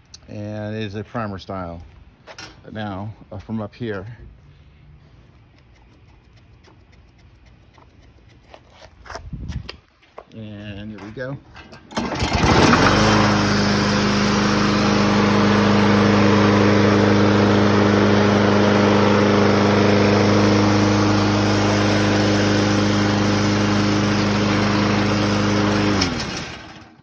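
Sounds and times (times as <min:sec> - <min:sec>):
pull starter cord: 0:11.6 - 0:15.7, 0:22.8 - 0:27.0
mower engine running: 0:11.8 - 0:27.0.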